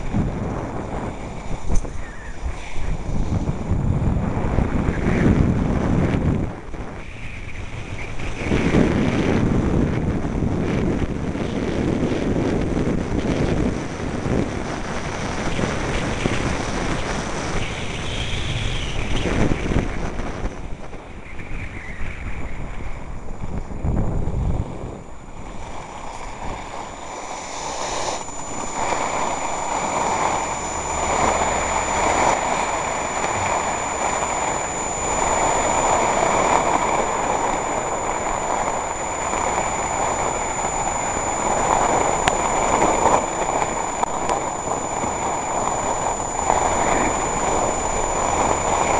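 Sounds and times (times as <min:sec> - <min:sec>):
wind buffeting microphone: 0:00.0 - 0:48.9
skis scraping on snow: 0:23.6 - 0:48.9.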